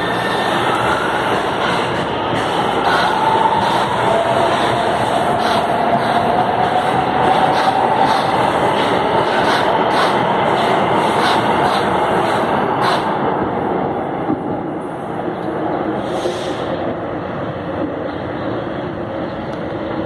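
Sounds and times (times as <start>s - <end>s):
train wheels rumbling on rail: 0.0s - 20.0s
wheels clacking over rail joints: 7.4s - 13.2s.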